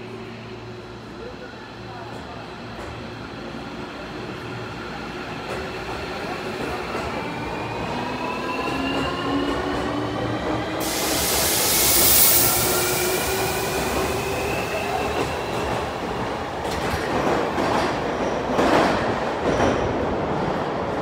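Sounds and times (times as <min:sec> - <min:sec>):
rush of passing train cars: 0:00.0 - 0:21.0
loud hiss: 0:10.8 - 0:15.0.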